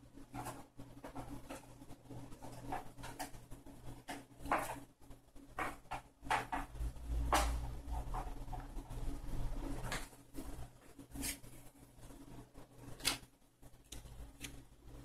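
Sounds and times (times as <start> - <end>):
paper cards sliding and tapping: 11.1 - 11.6.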